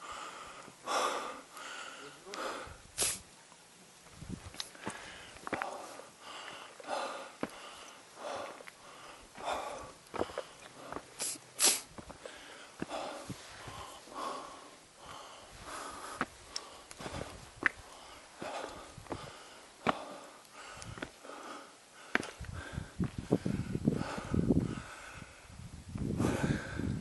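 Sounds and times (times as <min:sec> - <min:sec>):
heavy breathing: 0:00.0 - 0:02.8, 0:04.7 - 0:25.6, 0:26.2 - 0:27.0
footsteps on stones: 0:04.0 - 0:14.0, 0:15.0 - 0:21.2, 0:22.0 - 0:23.3.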